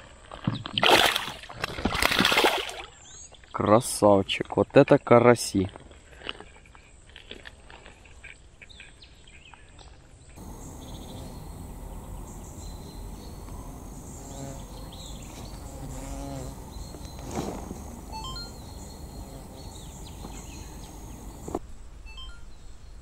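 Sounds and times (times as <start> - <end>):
insects buzzing: 10.4 - 21.6
short chirping calls: 10.4 - 21.6.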